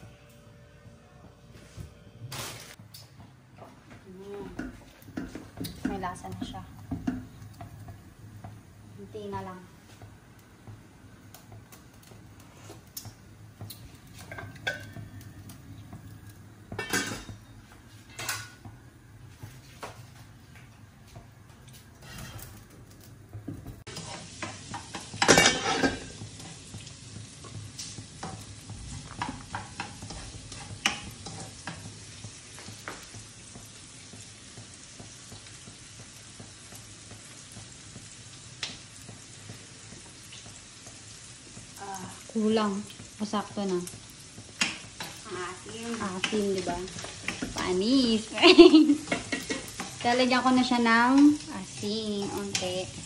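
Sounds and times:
spoon stirring and tapping pot: 0:04.4 - 0:08.6, 0:13.0 - 0:15.2, 0:27.2 - 0:35.5, 0:46.1 - 0:47.7.

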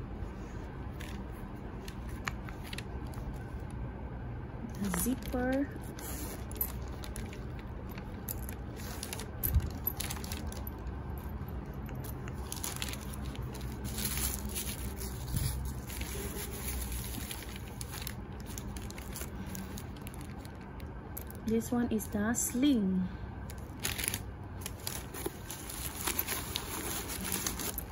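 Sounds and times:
tissue paper crinkling: 0:05.2 - 0:10.7, 0:12.0 - 0:20.8, 0:23.5 - 0:27.9.

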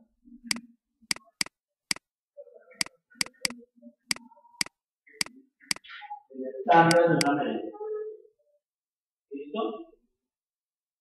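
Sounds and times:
pen clicking on writing surface: 0:01.1 - 0:02.0, 0:02.8 - 0:04.7, 0:06.9 - 0:07.3
person speaking: 0:02.7 - 0:04.7, 0:06.7 - 0:07.5.

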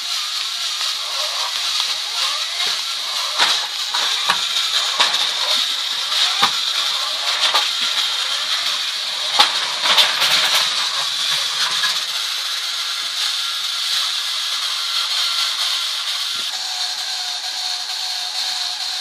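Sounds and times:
toy electric motors whining: 0:00.0 - 0:19.0
toy car knocking into plastic track: 0:01.0 - 0:12.1.

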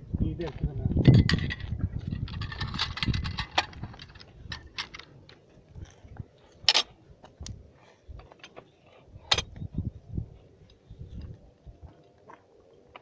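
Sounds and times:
metal gun parts clicking: 0:01.2 - 0:05.4, 0:06.6 - 0:06.9.

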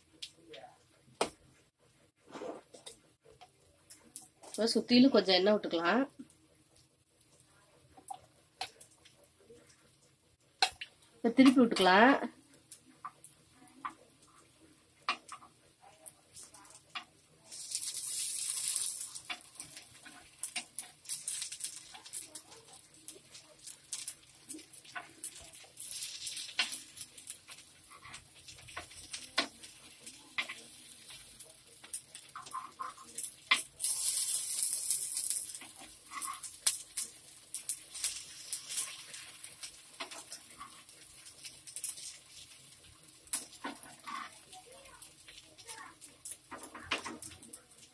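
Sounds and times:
oil sizzling: 0:02.3 - 0:47.9
spoon scraping on metal pan: 0:35.5 - 0:42.5, 0:43.4 - 0:44.4.

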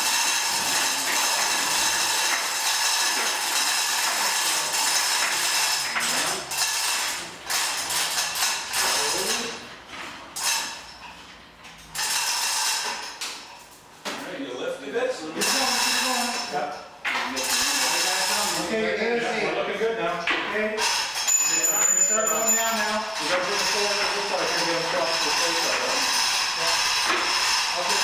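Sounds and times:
scattered clicks and knocks: 0:00.1 - 0:13.7, 0:20.3 - 0:28.0.

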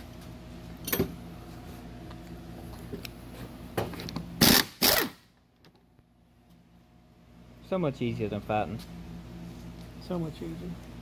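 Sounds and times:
cordless impact wrench bursts: 0:04.4 - 0:05.3.

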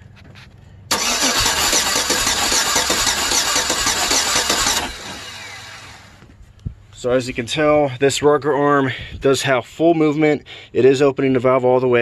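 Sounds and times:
engine cranking on starter: 0:00.9 - 0:06.2.

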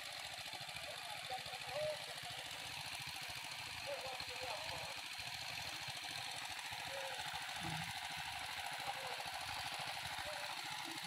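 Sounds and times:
small engine running: 0:00.0 - 0:11.0.

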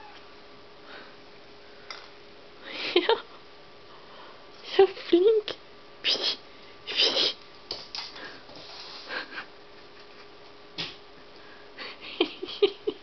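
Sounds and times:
faint steady hum: 0:00.0 - 0:13.0
cat scuffs and rustles: 0:07.7 - 0:09.3.

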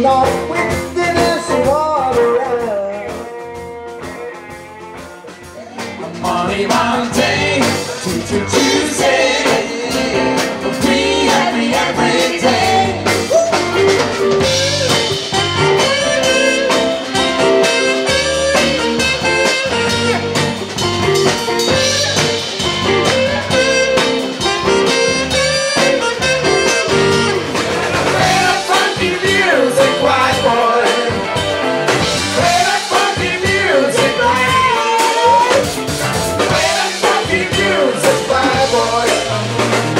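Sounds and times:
man singing: 0:00.0 - 0:03.5, 0:05.6 - 0:15.0, 0:28.0 - 0:31.5, 0:32.3 - 0:39.8
live blues-rock band playing: 0:00.0 - 0:39.9.

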